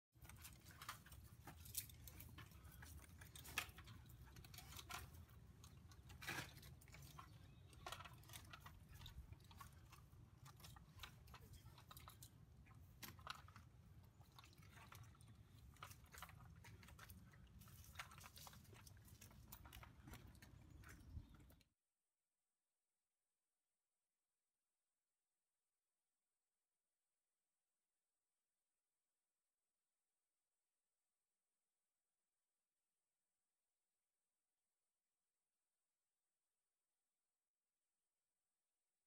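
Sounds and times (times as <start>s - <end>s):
light clicks and crackles: 0.2s - 21.6s.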